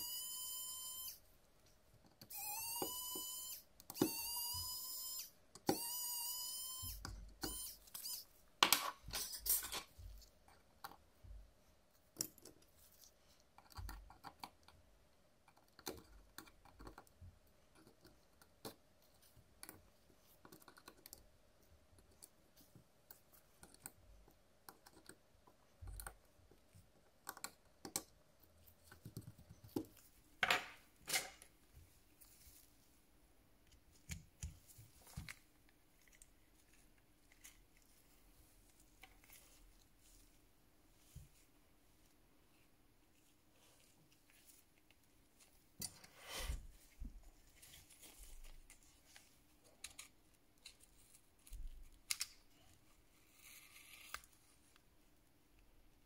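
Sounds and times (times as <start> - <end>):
short whining tones: 0.0 - 1.2
small tools clicking on phone: 2.0 - 8.3.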